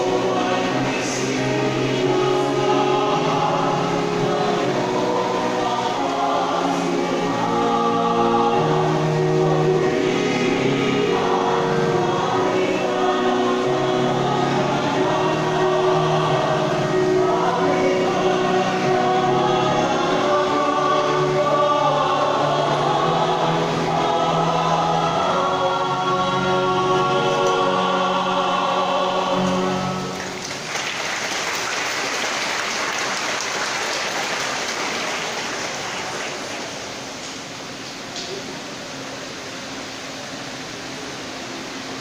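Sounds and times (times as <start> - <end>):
choir singing a hymn: 0.0 - 37.1
congregation applauding: 29.4 - 37.2.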